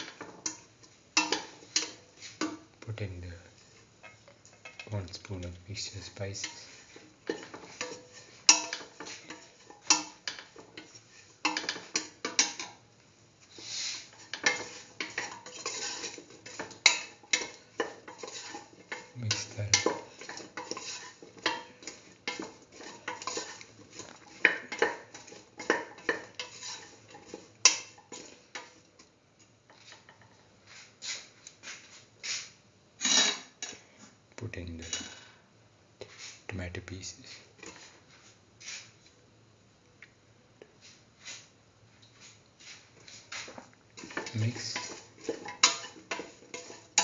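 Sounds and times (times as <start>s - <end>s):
spatula scraping a pan: 0.0s - 2.6s, 5.8s - 12.8s, 13.4s - 28.9s, 37.3s - 39.0s, 42.2s - 47.0s.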